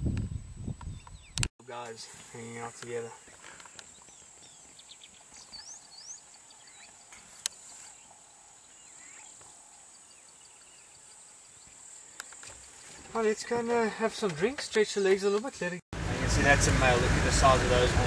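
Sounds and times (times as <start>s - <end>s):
quick ticking insect calls: 2.8s - 12.7s.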